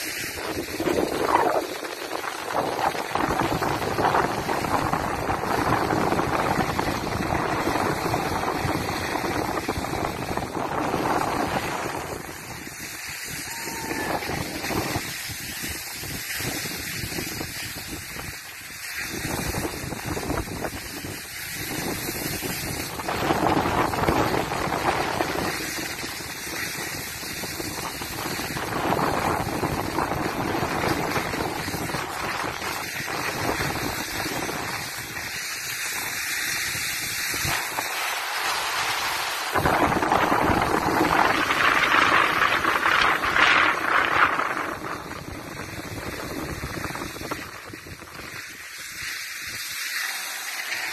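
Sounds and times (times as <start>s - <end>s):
skis scraping over packed snow: 0.0s - 50.9s
wind rushing over microphone: 0.0s - 50.9s.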